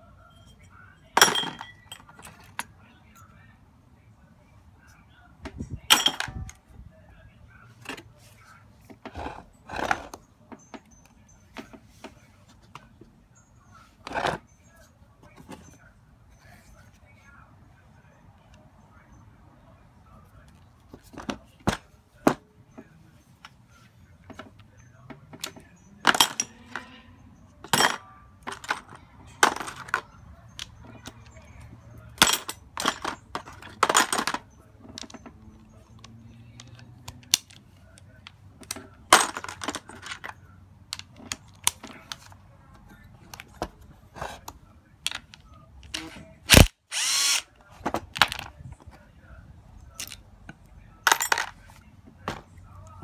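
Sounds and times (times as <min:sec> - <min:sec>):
metal parts clicking and clinking: 0:00.3 - 0:03.3, 0:05.9 - 0:06.6, 0:25.4 - 0:37.6, 0:38.2 - 0:42.3, 0:49.8 - 0:50.3, 0:51.0 - 0:51.6
power driver spinning a socket: 0:46.5 - 0:47.4.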